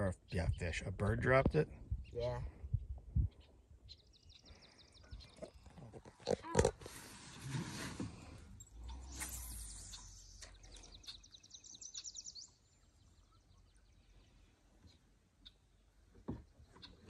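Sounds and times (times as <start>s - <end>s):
fishing rod cast swish: 8.8s - 10.7s.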